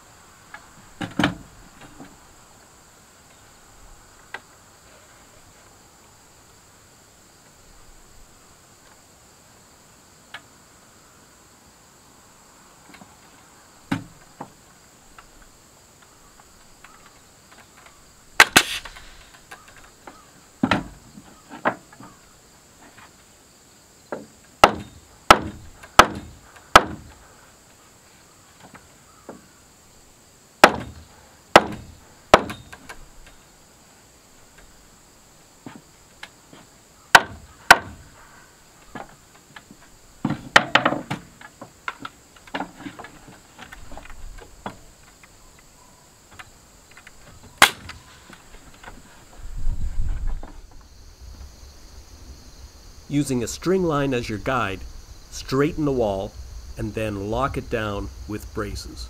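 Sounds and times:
insects chirring: 0.0 - 59.0
hammer driving nails into wood: 24.6 - 27.1, 30.6 - 32.6.

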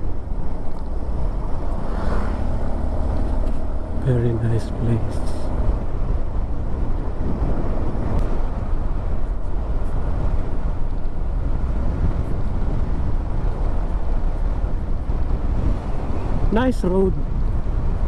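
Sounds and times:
vehicle rumble with road noise: 0.0 - 18.0
wind on microphone: 4.8 - 18.0.

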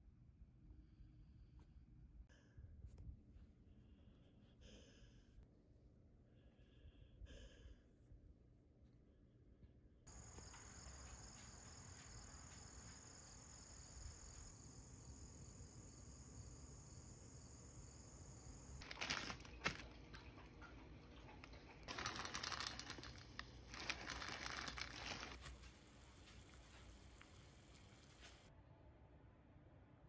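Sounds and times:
high-pitched outdoor hiss: 10.1 - 19.8, 23.8 - 28.5
plastic packet crinkling: 18.8 - 20.3, 21.9 - 27.7.

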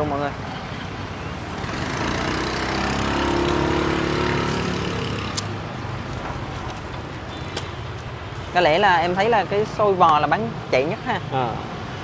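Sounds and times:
motorbike engine passing: 1.5 - 5.7.

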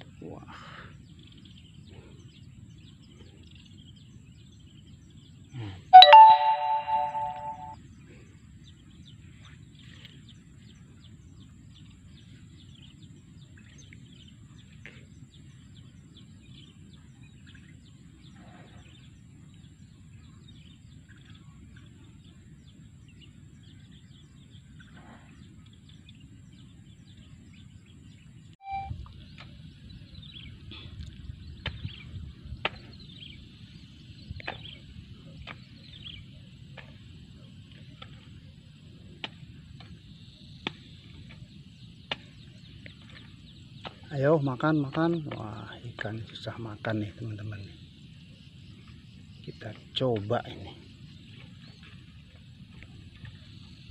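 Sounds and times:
faint bird chirps: 5.6 - 7.8, 28.6 - 29.0
bell-like chime: 6.0 - 7.8.

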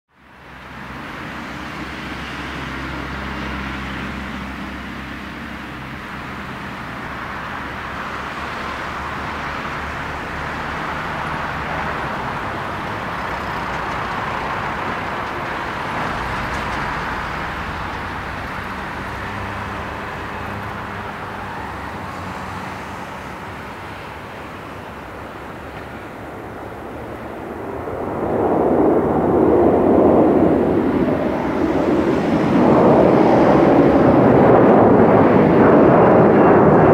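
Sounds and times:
jet engines rushing: 0.2 - 36.9.

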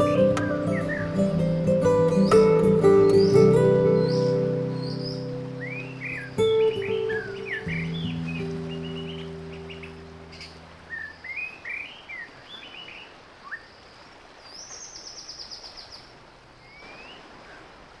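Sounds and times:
acoustic guitar piece: 0.0 - 10.9
songbirds chirping: 0.0 - 18.0
bird trilling: 0.4 - 1.2, 3.1 - 13.7.

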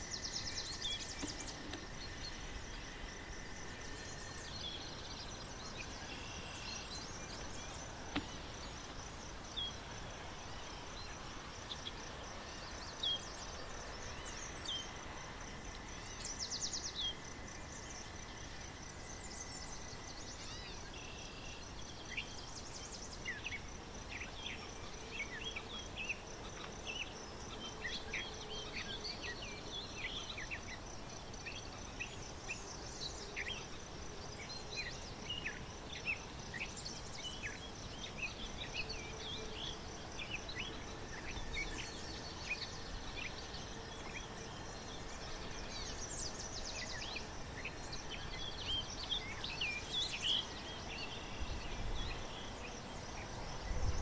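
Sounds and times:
small birds chirping: 0.0 - 2.9
faint background hiss: 0.0 - 54.0.

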